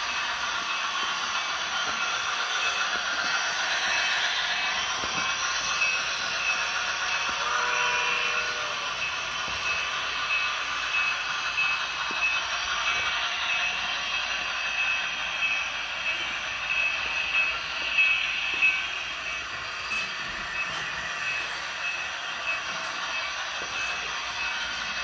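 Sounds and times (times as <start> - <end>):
model train motor whirring: 0.0 - 25.0
wheels rolling on rails: 0.0 - 25.0.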